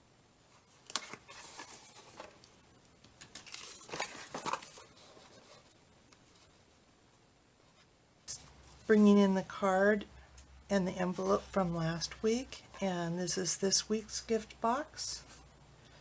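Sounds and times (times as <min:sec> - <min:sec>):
paper rustling and crinkling: 0:00.5 - 0:02.5, 0:03.2 - 0:06.6.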